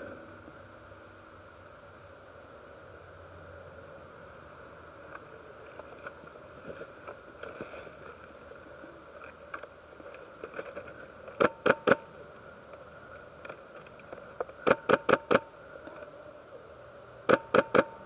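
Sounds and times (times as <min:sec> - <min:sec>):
steady background hum: 0:00.0 - 0:18.0
faint rustling: 0:05.1 - 0:11.4.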